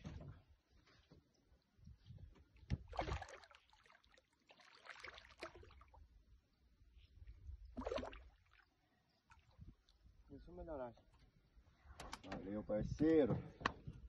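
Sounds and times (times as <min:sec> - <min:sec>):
fish splashing at water surface: 0:02.9 - 0:06.0, 0:07.8 - 0:08.7.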